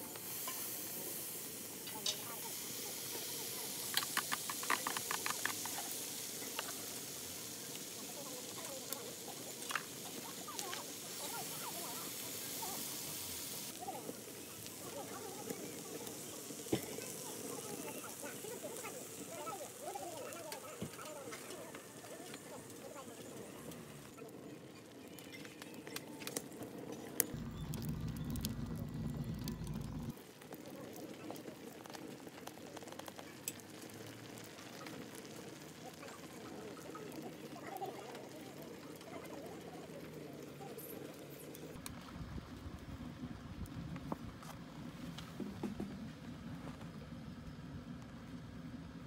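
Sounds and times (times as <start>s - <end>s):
octopus sizzling in a frying pan: 0.0s - 25.9s, 27.2s - 40.2s
firewood crackling and popping: 0.0s - 49.0s
crackles and taps: 3.9s - 5.9s, 9.6s - 9.9s, 10.5s - 10.8s, 25.2s - 38.3s
low rumble: 27.4s - 30.2s.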